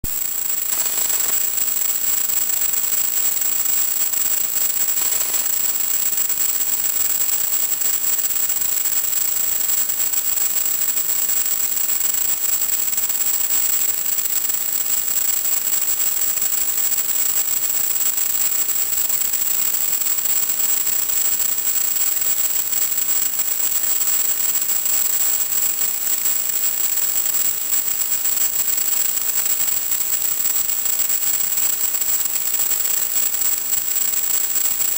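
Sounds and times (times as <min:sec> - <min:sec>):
static hiss: 0:00.0 - 0:03.4, 0:04.1 - 0:06.0.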